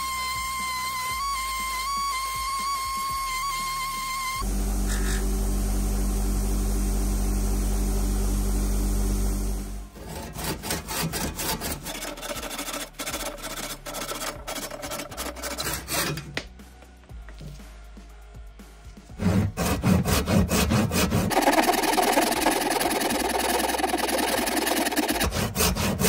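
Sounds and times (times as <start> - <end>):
buffing wheel motor humming: 4.4 - 9.8
handsaw cutting wood: 10.0 - 16.3, 19.1 - 26.0.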